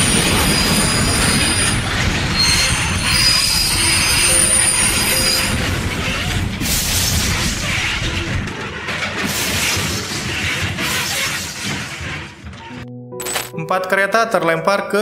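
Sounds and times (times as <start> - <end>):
train wheels squealing: 0.0 - 8.3
train rumble: 0.0 - 12.8.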